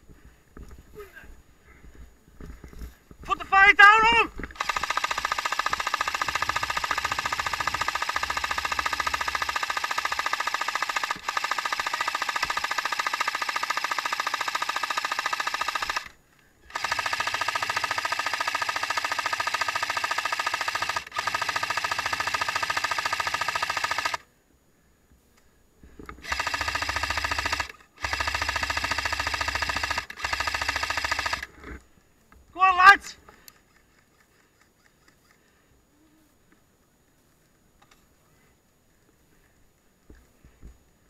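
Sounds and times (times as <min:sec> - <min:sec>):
airsoft machine gun bursts: 0:03.8 - 0:24.3, 0:26.2 - 0:31.5.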